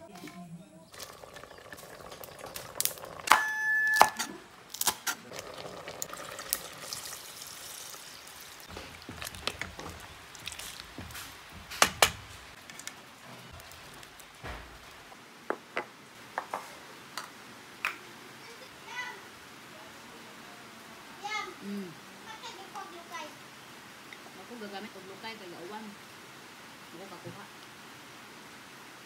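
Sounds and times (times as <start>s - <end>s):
liquid sloshing: 0.9s - 3.3s, 5.1s - 12.6s.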